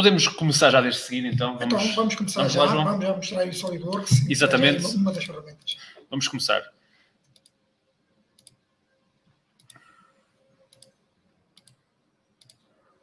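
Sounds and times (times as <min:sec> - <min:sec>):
faint computer mouse clicks: 0:07.2 - 0:07.6, 0:08.4 - 0:08.6, 0:09.6 - 0:10.0, 0:10.7 - 0:11.0, 0:11.6 - 0:11.8, 0:12.4 - 0:12.7.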